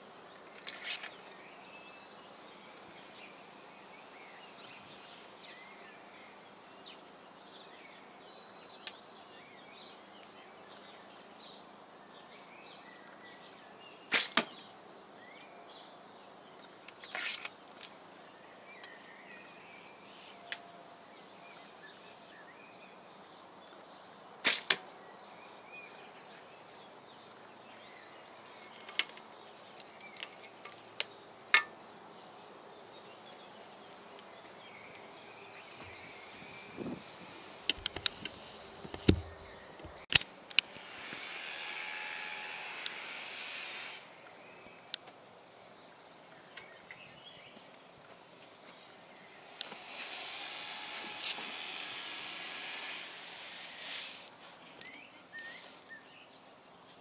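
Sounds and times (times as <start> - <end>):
arrows striking target: 14.1 - 14.5, 24.4 - 24.8, 38.9 - 39.3.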